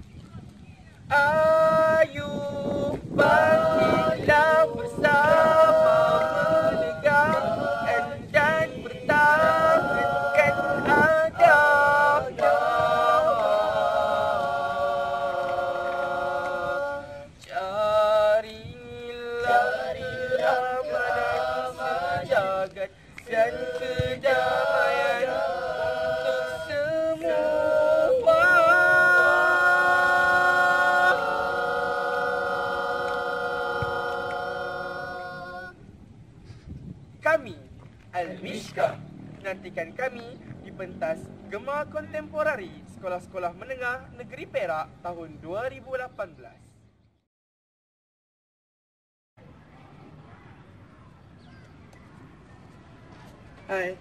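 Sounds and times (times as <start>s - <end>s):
boys singing a cappella: 1.1s - 35.8s.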